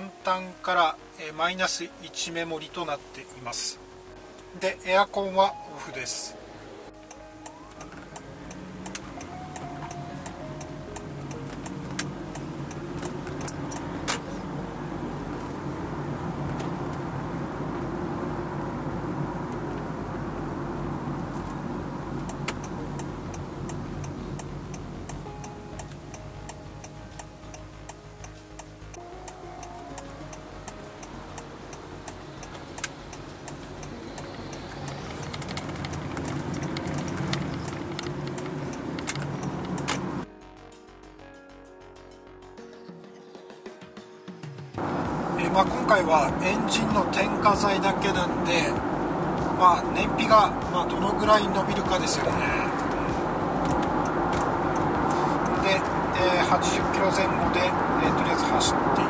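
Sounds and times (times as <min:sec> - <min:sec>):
car cabin road noise: 0:00.0 - 0:40.3, 0:44.8 - 0:59.0
sharp clicks: 0:07.0 - 0:14.2, 0:22.2 - 0:40.2, 0:52.7 - 0:55.8
turn signal ticking: 0:07.0 - 0:40.3, 0:44.8 - 0:59.0.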